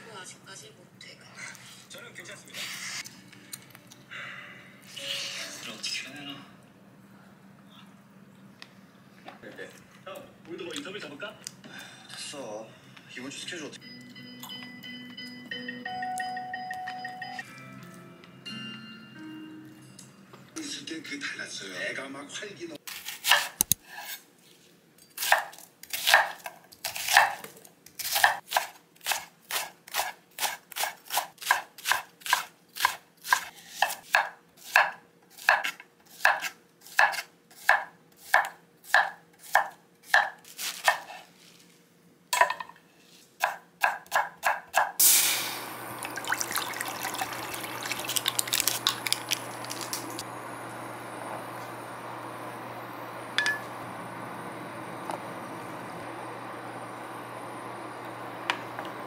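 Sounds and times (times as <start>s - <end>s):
knife chopping on wooden board: 28.0s - 41.1s.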